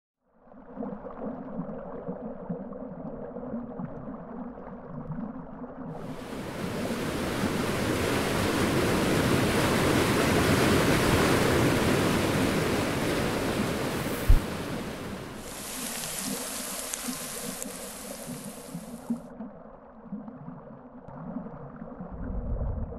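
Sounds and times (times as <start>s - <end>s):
underwater rushing water: 6.0s - 19.4s
dull thump: 14.2s - 14.6s.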